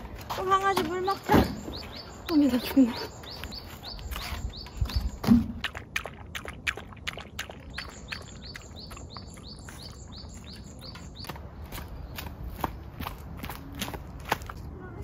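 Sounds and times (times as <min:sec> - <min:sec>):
dog lapping water: 0:05.4 - 0:10.9.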